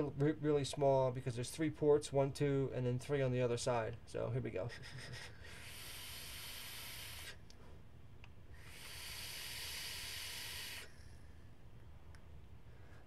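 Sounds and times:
hissing exhale of vapor: 5.5 - 7.4, 8.6 - 11.2
air hissing through vape tank: 5.5 - 7.5, 8.5 - 11.4.

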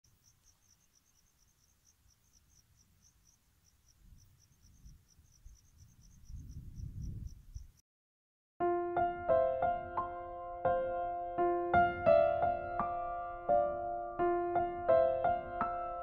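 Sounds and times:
crickets chirping: 0.0 - 7.8.

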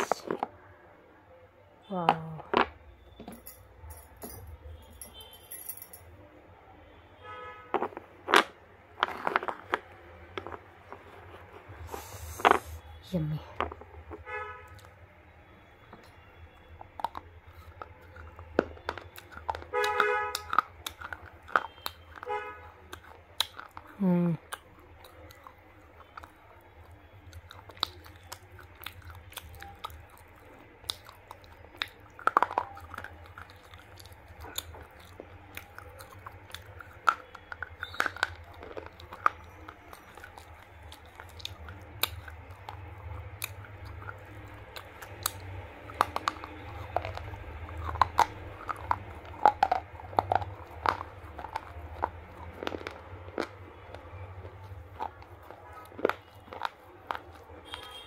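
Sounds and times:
crunching and chewing: 7.7 - 58.0.

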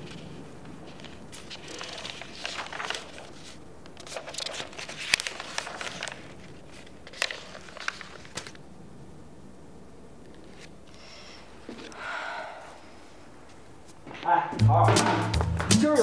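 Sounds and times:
paper pages rustling: 0.0 - 8.6, 10.3 - 11.0.

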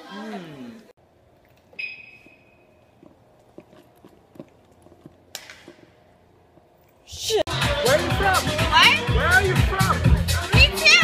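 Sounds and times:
footsteps on concrete: 2.2 - 7.0.

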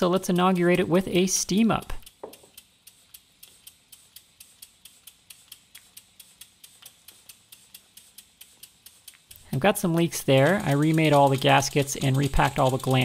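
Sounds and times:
model steam engine ticking: 0.0 - 13.0.

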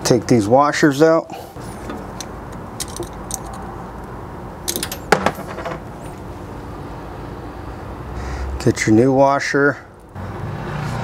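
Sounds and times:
light metallic clicks and clinks: 1.8 - 3.7.

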